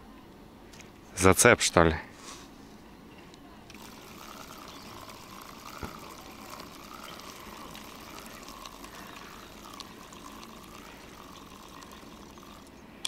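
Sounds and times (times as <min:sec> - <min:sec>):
fishing reel whirring: 0:03.7 - 0:12.8.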